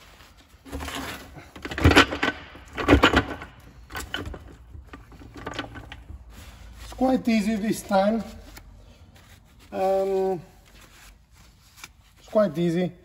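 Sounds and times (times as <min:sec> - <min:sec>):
metal gears clunking and clattering: 0:01.6 - 0:06.2.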